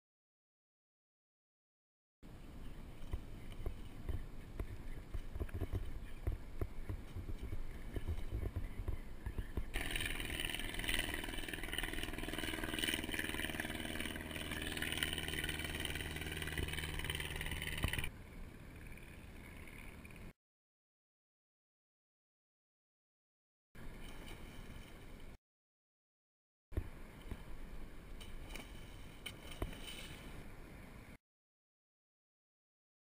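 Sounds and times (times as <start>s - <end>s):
mechanical drone: 8.9s - 20.3s.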